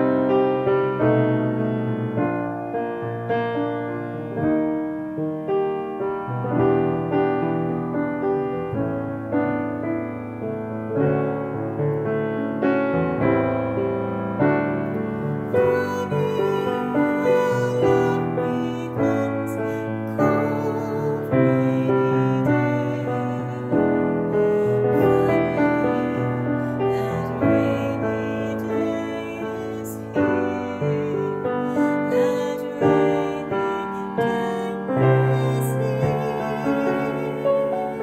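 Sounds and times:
grand piano jazz ballad: 0:00.0 - 0:38.0
woman singing with vibrato: 0:15.3 - 0:38.0.

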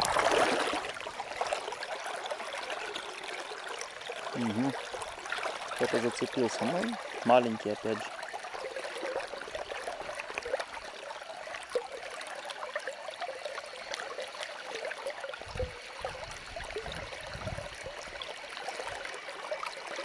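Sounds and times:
flowing river water: 0:00.0 - 0:20.0.

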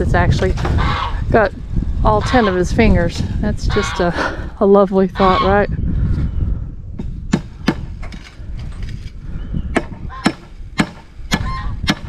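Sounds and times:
hammer striking nails into wood: 0:09.8 - 0:12.0.

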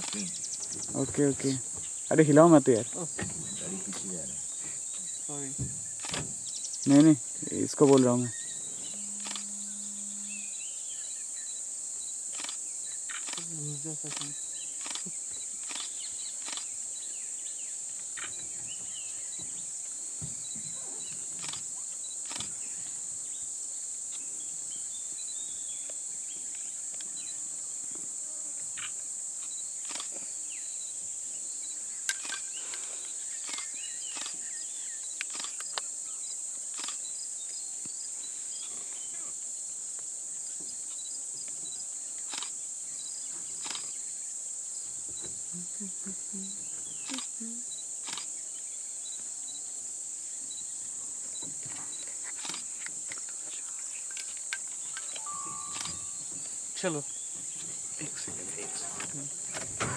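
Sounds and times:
faint clicks and chirps: 0:00.0 - 0:01.6, 0:08.9 - 0:09.5, 0:12.3 - 0:16.8, 0:20.4 - 0:23.0, 0:28.8 - 0:30.3, 0:32.0 - 0:38.0, 0:39.4 - 0:44.0, 0:46.6 - 0:47.4, 0:48.0 - 0:48.4, 0:51.3 - 0:58.1
insects droning: 0:00.0 - 0:59.9.

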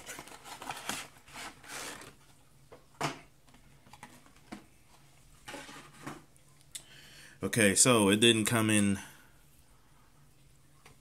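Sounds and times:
packaging rustling: 0:00.0 - 0:02.4.

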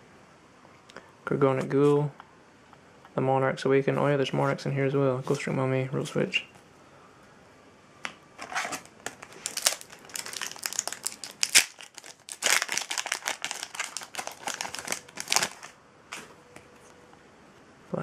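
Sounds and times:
wrapper snapping: 0:09.0 - 0:16.2
foil wrapper crinkling: 0:09.1 - 0:15.8.

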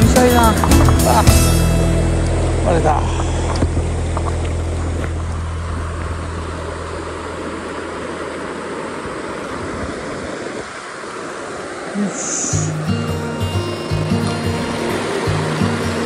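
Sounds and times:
low steady hum: 0:00.0 - 0:09.5
river water rushing: 0:00.0 - 0:16.0.

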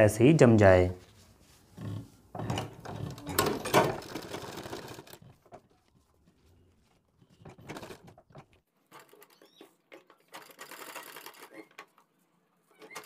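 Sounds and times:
sewing machine clattering: 0:02.4 - 0:05.6, 0:07.2 - 0:12.0, 0:12.7 - 0:13.0.

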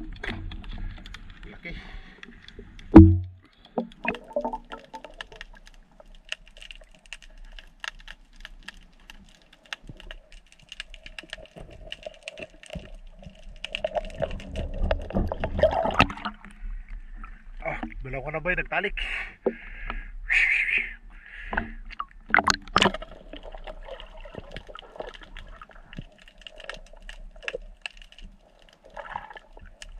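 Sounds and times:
heavy underwater thump: 0:02.9 - 0:03.5.

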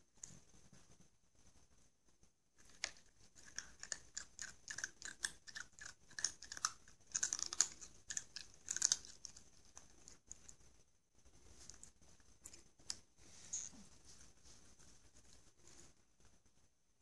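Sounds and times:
cat crunching food: 0:02.6 - 0:10.6.

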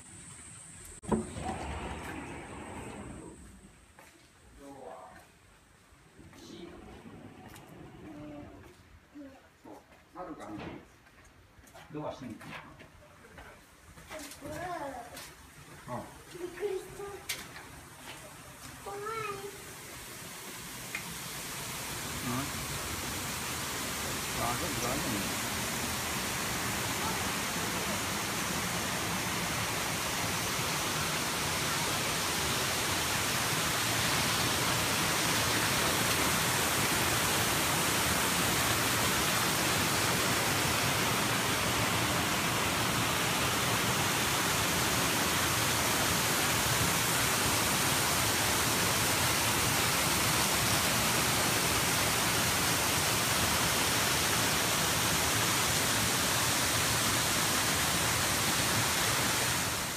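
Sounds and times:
waterfall rushing: 0:18.8 - 0:59.9.

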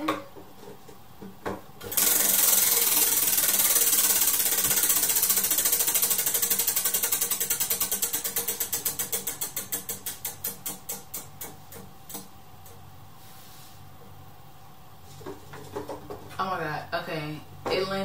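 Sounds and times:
prize wheel flapper clicking: 0:01.9 - 0:11.4.

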